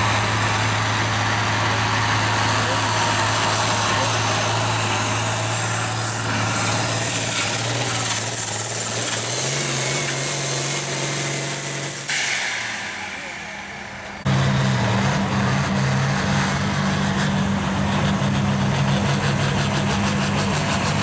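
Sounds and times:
tractor diesel engine under load: 0:00.0 - 0:21.0.

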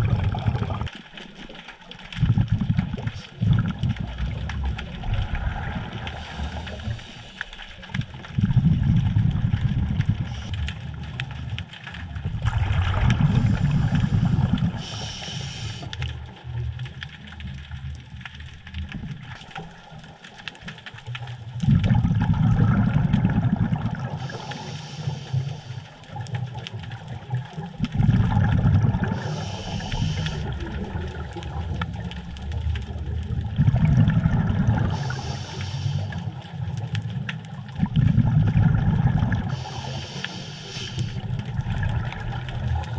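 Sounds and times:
exhaled bubbles underwater: 0:00.0 - 0:42.9
regulator hiss: 0:06.2 - 0:07.6, 0:13.4 - 0:16.0, 0:24.2 - 0:26.0, 0:29.1 - 0:30.6, 0:34.9 - 0:36.3, 0:39.5 - 0:41.2.

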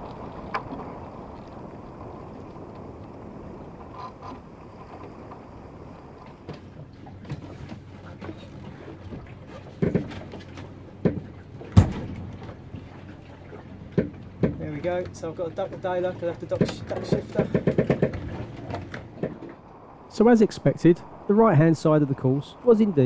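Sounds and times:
water rushing past hull: 0:00.0 - 0:23.0
wind: 0:00.0 - 0:23.0
deck gear clicks and knocks: 0:09.1 - 0:12.6, 0:13.9 - 0:19.6
loud thumps: 0:11.0 - 0:12.5, 0:16.5 - 0:19.5.

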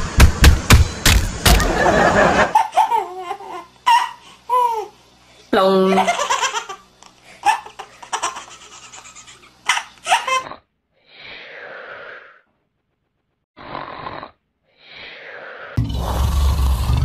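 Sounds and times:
baby laughing: 0:02.4 - 0:05.0, 0:05.9 - 0:10.5
baby snoring: 0:13.6 - 0:15.8.

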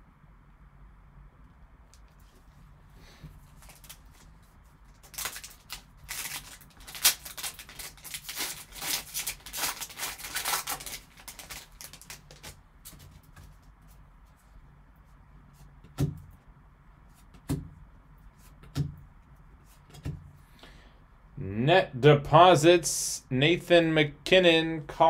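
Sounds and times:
cards being handled: 0:03.5 - 0:14.4
card pack wrapper crinkling and tearing: 0:03.6 - 0:04.3, 0:04.9 - 0:13.0.

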